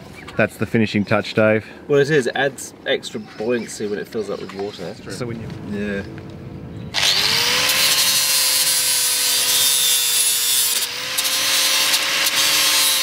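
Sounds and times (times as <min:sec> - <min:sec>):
angle grinder grinding: 0:06.9 - 0:13.0.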